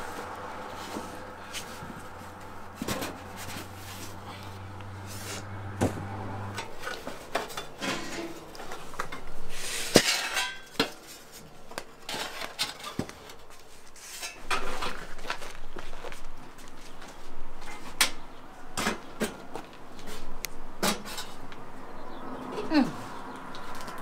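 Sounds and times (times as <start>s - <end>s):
metal trays clanking on rack: 6.5s - 9.3s, 9.9s - 11.0s.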